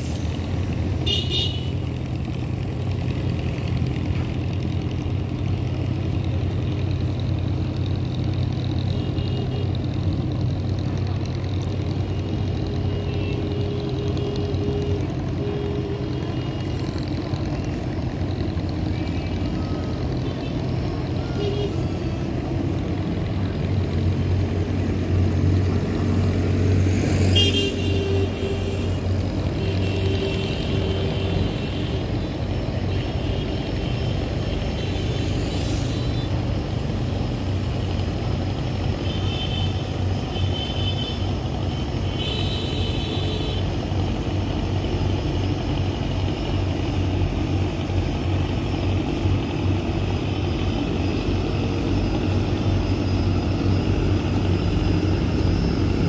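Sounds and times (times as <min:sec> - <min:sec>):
boat diesel engines droning: 0:00.0 - 0:56.0.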